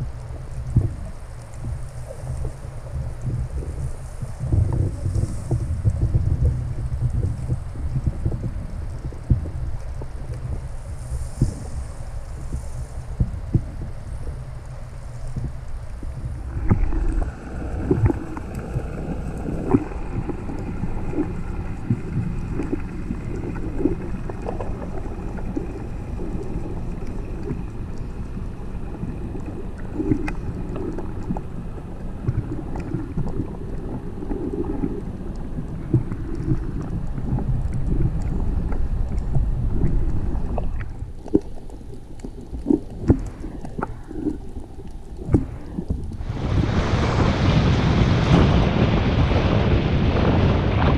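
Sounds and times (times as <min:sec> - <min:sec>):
underwater rumble of moving water: 0:00.0 - 0:50.9
underwater clicks and knocks: 0:15.3 - 0:31.6, 0:32.2 - 0:46.2.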